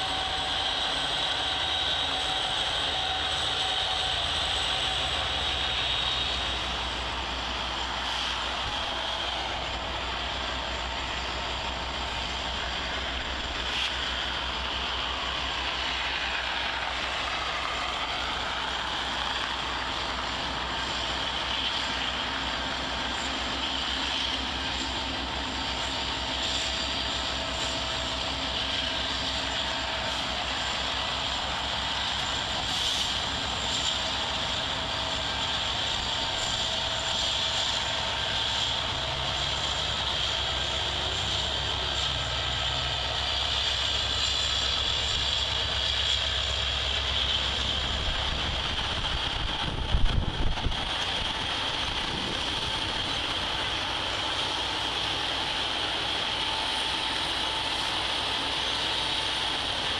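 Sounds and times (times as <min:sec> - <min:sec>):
diesel locomotive engine drone: 0:00.0 - 0:59.9
freight cars rumbling on rails: 0:00.0 - 0:59.9.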